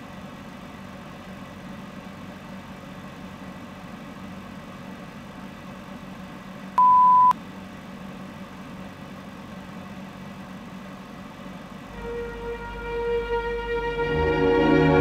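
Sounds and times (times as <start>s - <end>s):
electronic beep: 6.8s - 7.4s.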